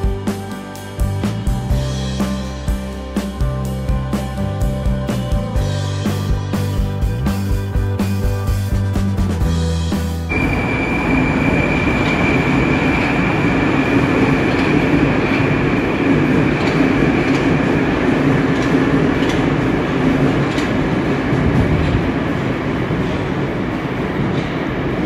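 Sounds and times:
high-pitched train whine: 10.3s - 25.0s
train wheels rumbling: 10.3s - 25.0s.

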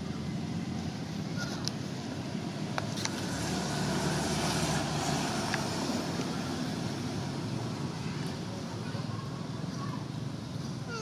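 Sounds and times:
motor vehicle passing: 0.0s - 10.8s.

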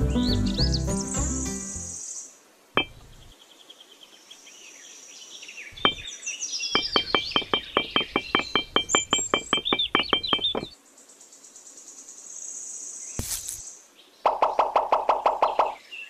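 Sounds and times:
faint bird chirps: 0.2s - 16.0s
clay bricks clicking: 6.8s - 10.7s.

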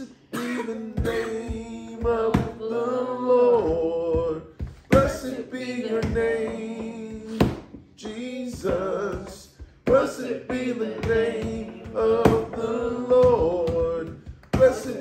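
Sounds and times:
voices singing worship song: 0.0s - 15.0s
sharp knocks: 3.6s - 15.0s.

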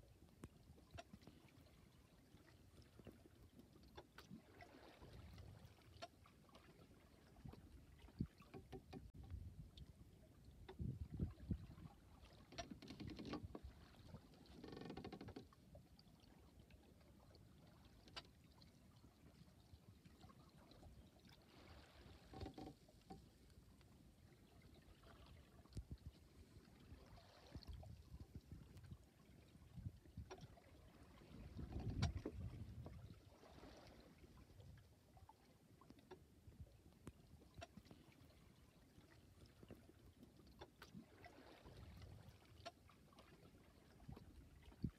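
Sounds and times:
water sloshing against hull: 0.0s - 44.9s
water washing against boat hull: 10.7s - 15.6s, 24.5s - 35.3s.

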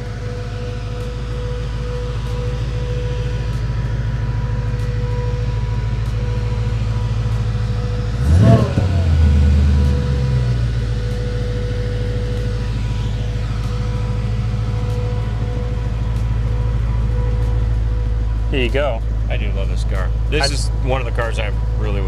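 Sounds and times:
car engine idling: 0.0s - 22.0s
engine revving: 0.0s - 22.0s.

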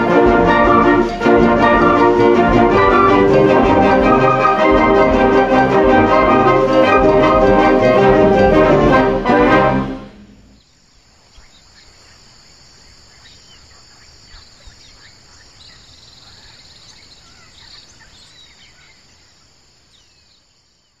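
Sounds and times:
high-pitched insect chorus: 10.2s - 21.0s.

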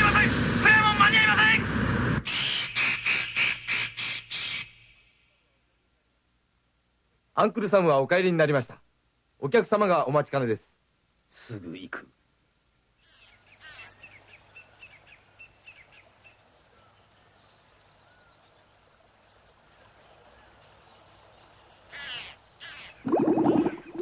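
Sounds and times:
insect drone: 0.0s - 5.4s, 13.0s - 24.0s
water bubbling and splashing: 23.0s - 24.0s.

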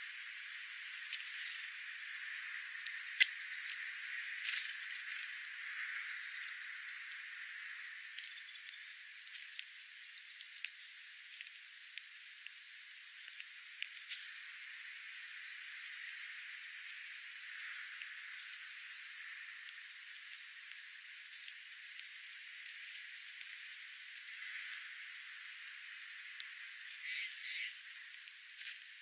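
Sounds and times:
birds pecking on gravel: 0.0s - 29.0s
high bird chirps: 3.1s - 3.7s, 25.3s - 28.2s.

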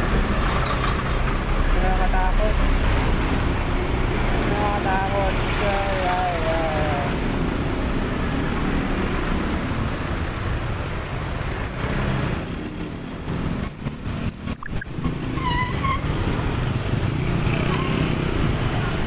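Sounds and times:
traffic engine and road rumble: 0.0s - 19.0s
short high-pitched tone: 14.6s - 14.9s.

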